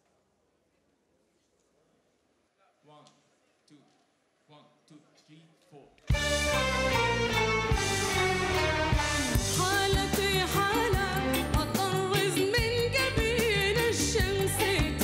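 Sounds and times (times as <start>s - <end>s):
band accompaniment with steady beat: 6.1s - 15.0s
woman singing with vibrato: 9.3s - 15.0s.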